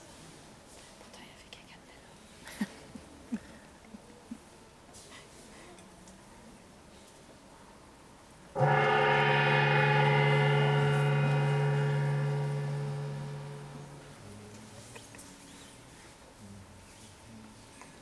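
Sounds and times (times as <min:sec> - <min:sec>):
gong ringing: 0:08.6 - 0:14.4.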